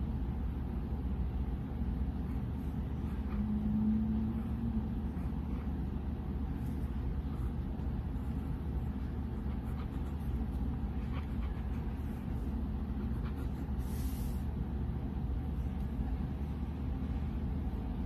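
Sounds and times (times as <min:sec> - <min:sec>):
pen scratching on paper: 0:02.2 - 0:14.4.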